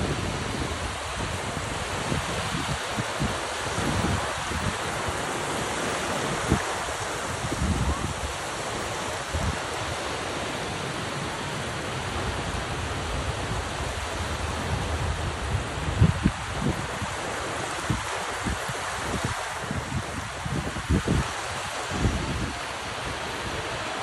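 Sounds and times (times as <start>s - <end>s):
waves lapping on sandy beach: 0.0s - 24.0s
wind thumps on microphone: 13.2s - 17.2s.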